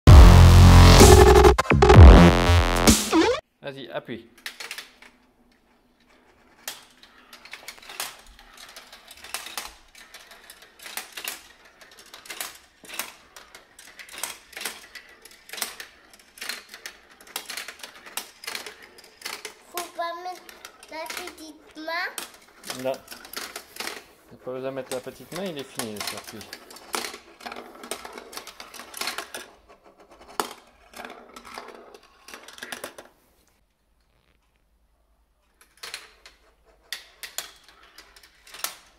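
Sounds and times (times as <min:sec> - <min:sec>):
sharp strike: 0:00.1 - 0:03.4
marbles clattering down plastic track: 0:06.7 - 0:29.6.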